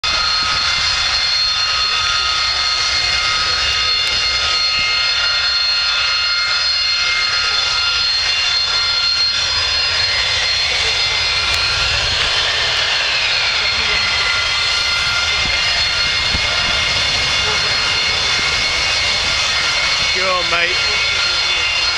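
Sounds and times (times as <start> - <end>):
jet engine whine: 0.0 - 21.9.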